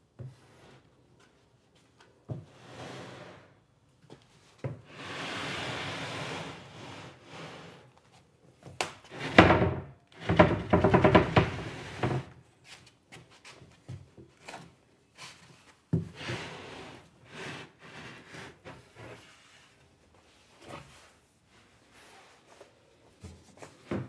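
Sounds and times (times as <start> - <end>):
cabinet scraping across floor: 2.4 - 3.6, 4.8 - 7.9, 9.1 - 12.4, 16.1 - 19.8
wooden knocks: 9.2 - 11.6.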